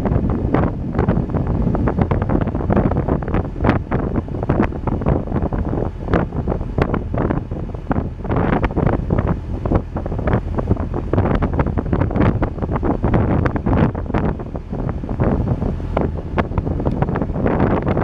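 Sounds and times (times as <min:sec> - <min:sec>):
boat rumble: 0:00.0 - 0:18.0
wind buffeting microphone: 0:00.0 - 0:18.0.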